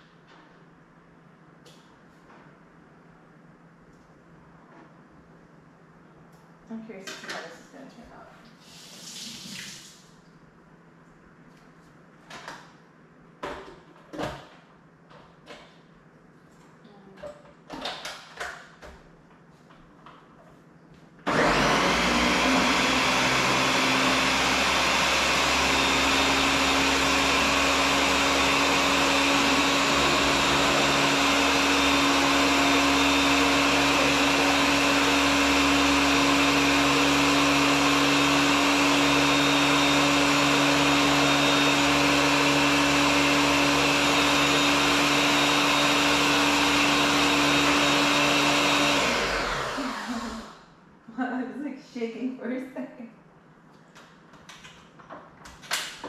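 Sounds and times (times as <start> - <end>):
blender running: 21.3 - 50.7.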